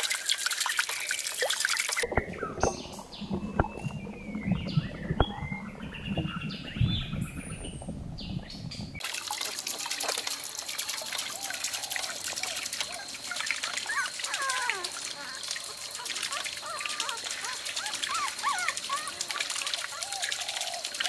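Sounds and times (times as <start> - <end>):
water trickling: 0.0 - 21.0
high chirping calls: 1.8 - 9.0.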